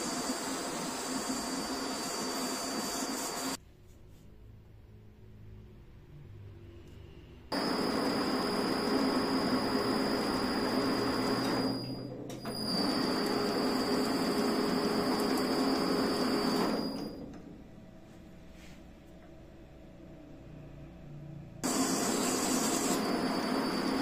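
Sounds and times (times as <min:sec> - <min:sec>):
cutting tool hiss: 0:00.0 - 0:03.6, 0:21.6 - 0:24.0
lathe motor whine: 0:00.0 - 0:03.6, 0:07.5 - 0:17.2, 0:21.6 - 0:24.0.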